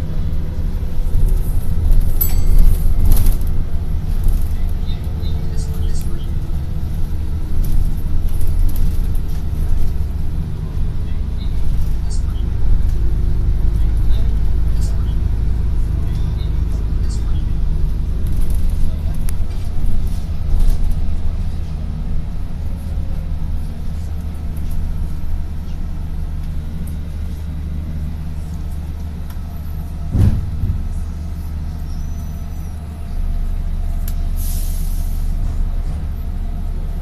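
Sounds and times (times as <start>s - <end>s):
bus engine and road rumble: 0.0s - 37.0s
knock inside bus: 30.1s - 30.9s
air brake hiss: 34.4s - 35.3s.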